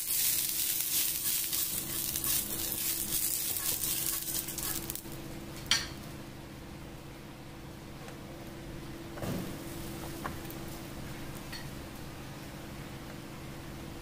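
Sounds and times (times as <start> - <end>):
ghee sizzling in a pan: 0.0 - 5.2.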